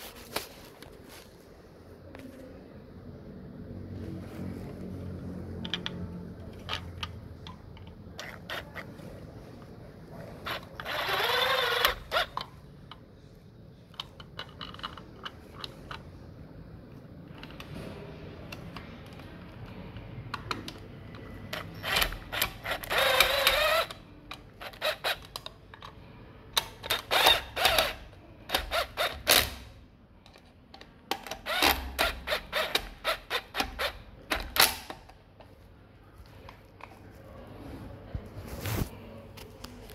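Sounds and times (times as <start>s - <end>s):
cordless drill motor whining: 10.5s - 12.3s, 21.8s - 23.9s.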